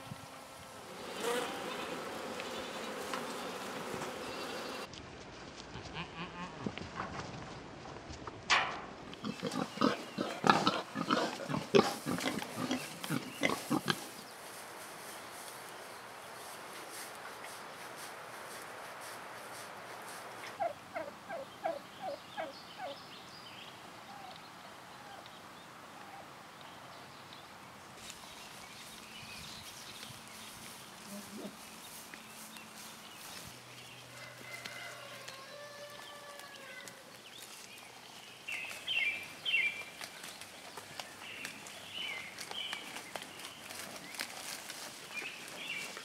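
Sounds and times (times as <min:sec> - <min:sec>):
outdoor background: 0:00.0 - 0:46.0
turkey calling: 0:20.6 - 0:23.0.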